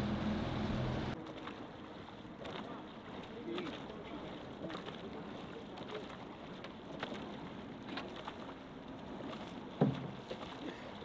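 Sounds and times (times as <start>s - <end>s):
water washing along hull: 0.0s - 11.0s
oars knocking on boat: 9.8s - 10.6s.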